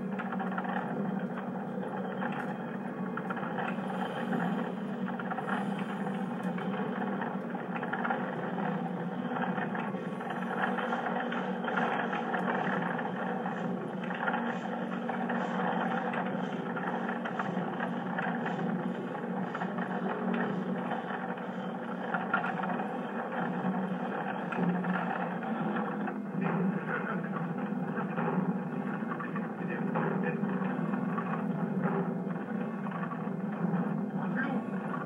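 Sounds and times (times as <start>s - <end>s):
droning machinery rumble: 0.0s - 35.0s.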